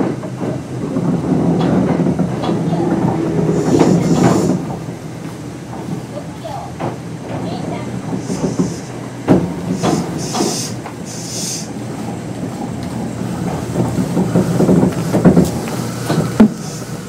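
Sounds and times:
traction motor hum: 0:00.0 - 0:17.0
train wheels clacking over rail joints: 0:00.0 - 0:17.0
short hisses: 0:09.7 - 0:11.8.

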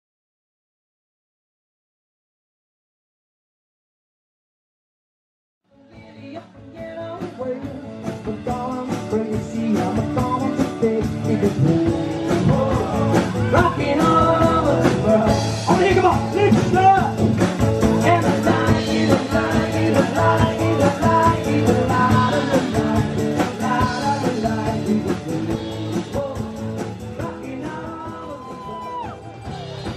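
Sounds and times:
man singing: 0:05.8 - 0:29.9
acoustic guitars strummed: 0:08.2 - 0:29.9.

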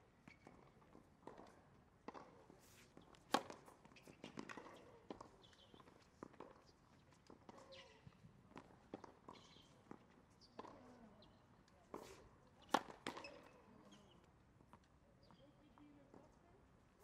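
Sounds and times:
racket striking ball: 0:03.3 - 0:03.7, 0:12.7 - 0:13.3.

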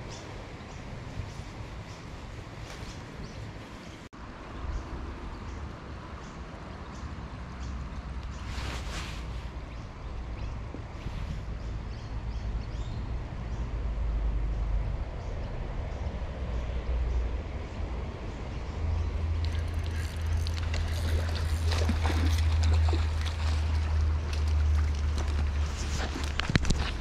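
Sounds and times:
clothing and grass rustling: 0:08.4 - 0:09.8, 0:19.6 - 0:27.0.

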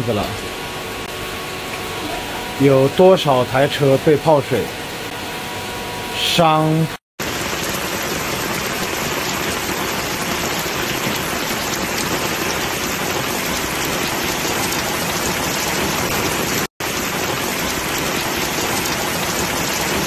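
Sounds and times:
heavy rain: 0:07.2 - 0:20.0.

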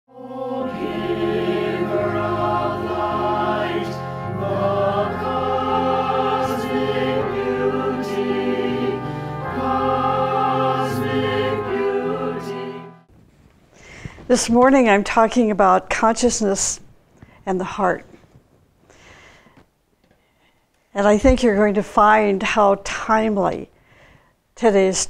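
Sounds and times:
choir singing held chords: 0:00.1 - 0:13.1.

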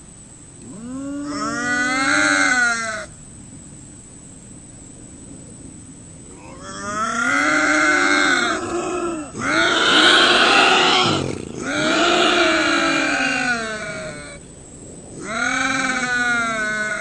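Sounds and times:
bobcat yowling: 0:00.6 - 0:03.1, 0:06.3 - 0:14.4, 0:15.2 - 0:17.0.

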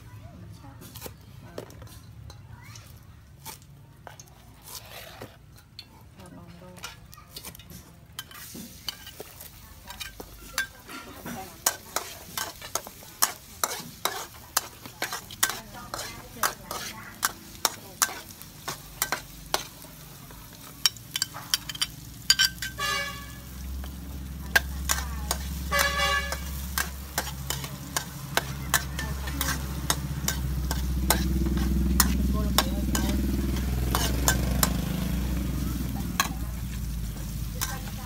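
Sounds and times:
faint sizzle: 0:00.0 - 0:38.0
metal spatula scraping a wok: 0:00.8 - 0:38.0
horn: 0:22.8 - 0:23.5, 0:25.7 - 0:26.6.

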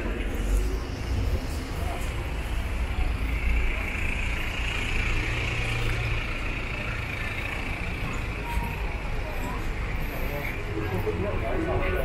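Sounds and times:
large vehicle engine humming: 0:00.0 - 0:12.0
street traffic: 0:00.0 - 0:12.0.

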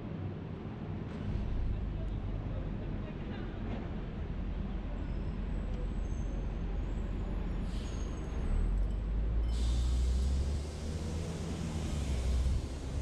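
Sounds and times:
car engine and tyres rumbling: 0:03.9 - 0:13.0.

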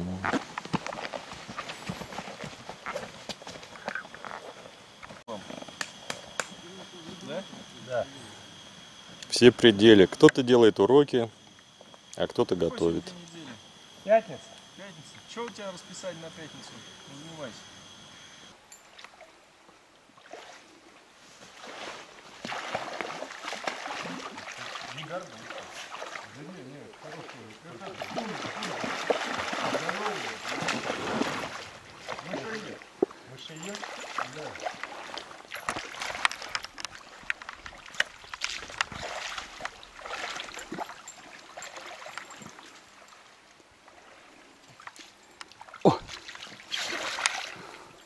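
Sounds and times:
insects chirping: 0:00.0 - 0:48.0
water splashing around wading legs: 0:21.5 - 0:32.9, 0:33.5 - 0:43.1, 0:44.7 - 0:47.8.

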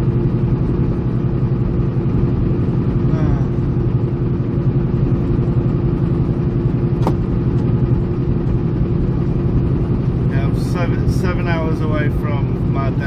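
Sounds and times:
constant hum: 0:00.0 - 0:13.0
truck diesel engine rumble: 0:00.0 - 0:13.0.

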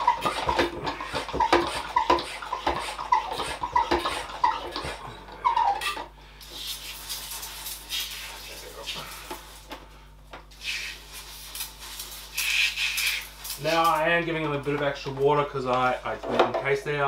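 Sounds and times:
pump plunger squeak and click: 0:00.0 - 0:06.1
water spraying hiss: 0:06.4 - 0:09.6, 0:10.5 - 0:13.9.

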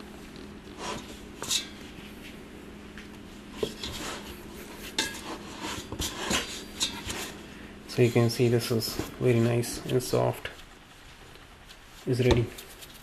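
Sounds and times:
low hum: 0:00.0 - 0:11.7
hands kneading dough: 0:03.0 - 0:13.0.

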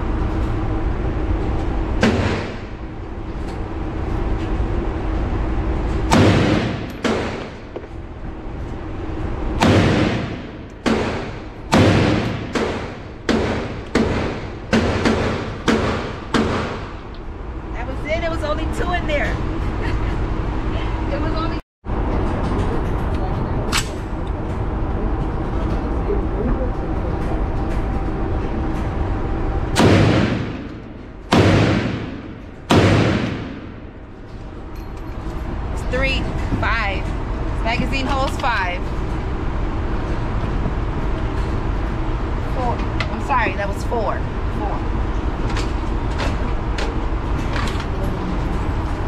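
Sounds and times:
rifle shots echoing indoors: 0:06.1 - 0:07.8, 0:09.6 - 0:16.9, 0:29.8 - 0:34.0.

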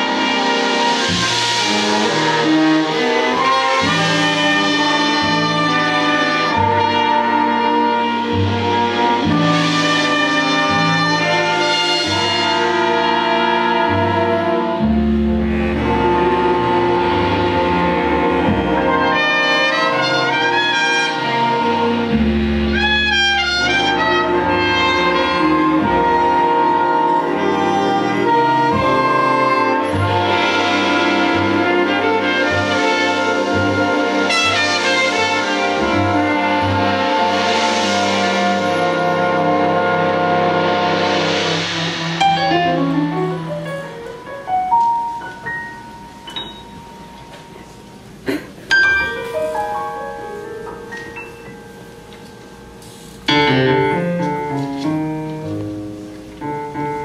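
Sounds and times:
jazz big band playing: 0:00.0 - 0:57.0
trumpet: 0:00.0 - 0:57.0
baritone saxophone low note: 0:11.1 - 0:37.8
sparse piano notes: 0:41.7 - 0:57.0.

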